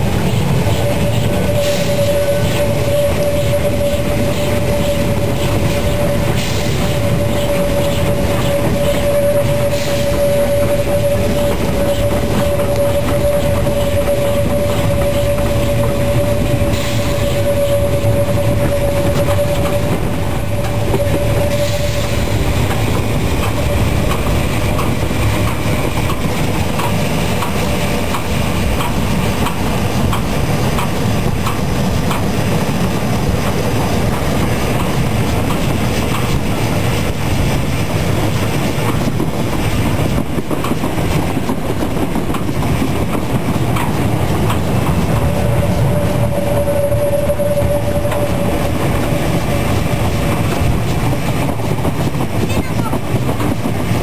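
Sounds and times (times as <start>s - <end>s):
regular rail clicking: 0.0s - 54.0s
train rumbling on rails: 0.0s - 54.0s
high squealing tone: 0.1s - 37.0s, 44.0s - 51.4s.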